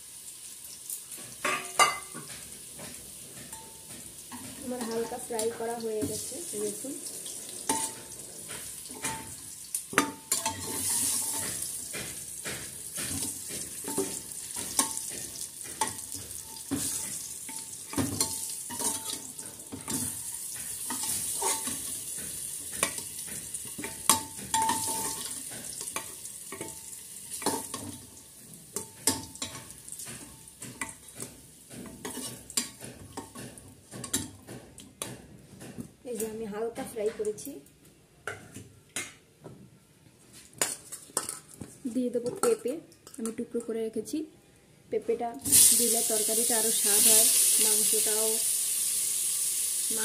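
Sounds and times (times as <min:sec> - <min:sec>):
potatoes sizzling in oil: 0:00.0 - 0:34.4, 0:45.4 - 0:50.0
metal spatula scraping and clinking: 0:07.6 - 0:27.9, 0:28.8 - 0:33.4.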